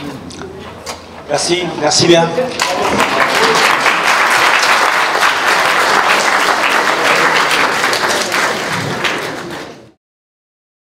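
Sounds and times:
audience applause: 2.6s - 10.0s.

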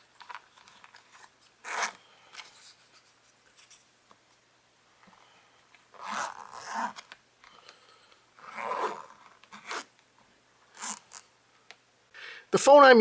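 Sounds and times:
zipper being pulled closed: 0.2s - 2.0s, 5.9s - 7.1s, 8.4s - 9.9s, 10.7s - 11.3s.

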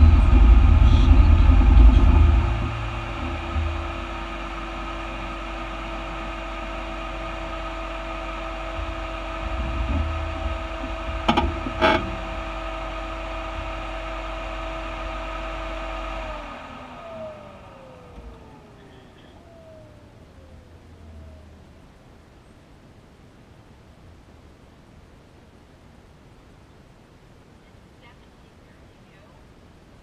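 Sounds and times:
engine switching off: 0.0s - 22.4s
car engine idling: 0.0s - 24.3s.

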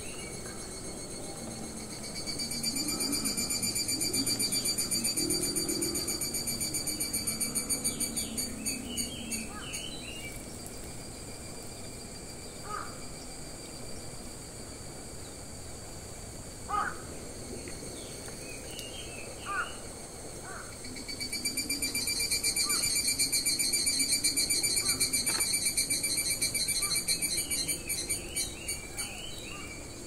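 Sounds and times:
high insect buzz: 0.0s - 30.0s
crow cawing: 12.6s - 13.0s, 16.7s - 17.0s, 19.4s - 19.8s, 20.4s - 20.7s.

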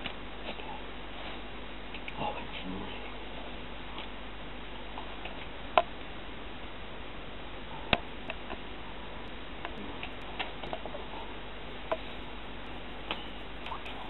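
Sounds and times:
steady hiss: 7.6s - 14.0s.

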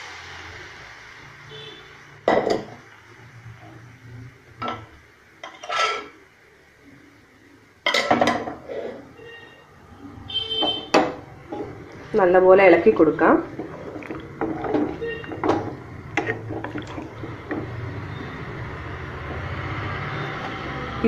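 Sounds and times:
metal utensils clinking on pan: 5.4s - 6.1s, 7.9s - 8.6s.

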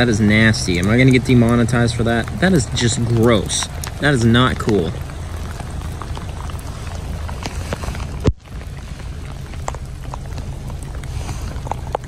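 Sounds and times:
drip ticks: 0.0s - 12.0s
low steady rumble: 0.0s - 12.0s
rain on wet road: 0.0s - 12.0s.

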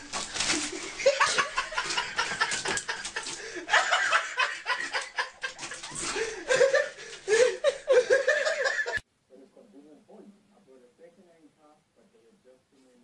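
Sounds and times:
people giggling and laughing: 0.5s - 9.0s.

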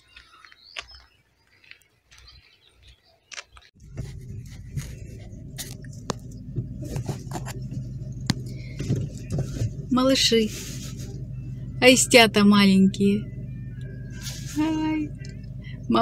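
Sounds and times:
car engine and road noise: 3.4s - 16.0s.

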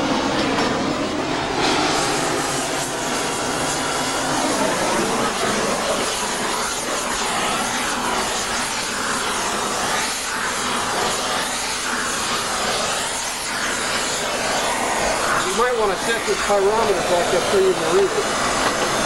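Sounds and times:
gas torch hissing: 0.0s - 19.0s.

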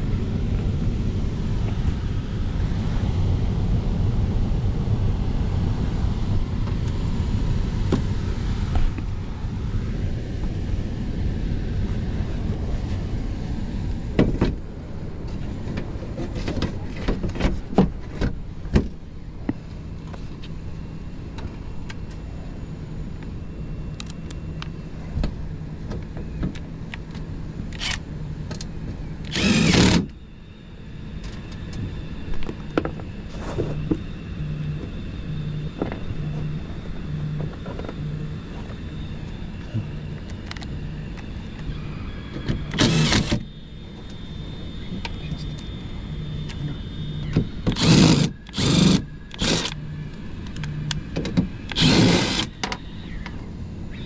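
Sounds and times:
loud rush of noise: 0.0s - 15.2s
air handler blower rumbling: 0.0s - 54.0s.

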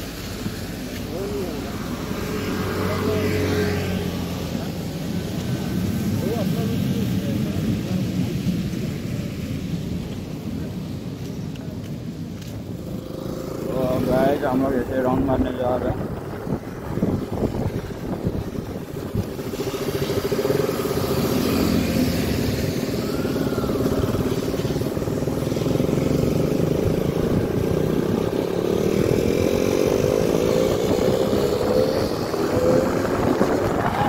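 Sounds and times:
motorcycle engine running: 12.6s - 34.0s.

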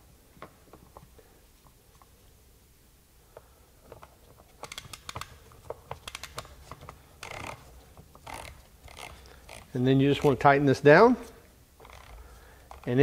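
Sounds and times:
metal and plastic clicks and rattles: 3.9s - 10.4s.

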